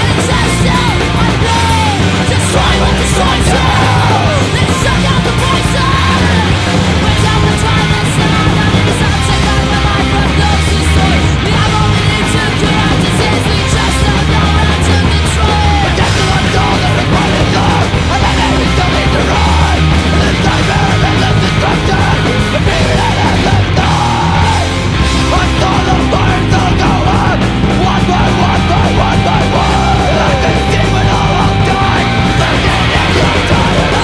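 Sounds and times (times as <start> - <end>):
loud distorted punk band: 0.0 - 34.0.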